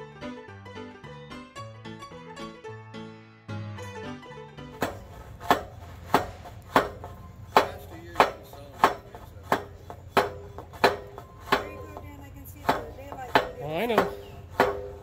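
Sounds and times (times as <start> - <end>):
hammer blows on ringing metal: 4.8 - 15.0.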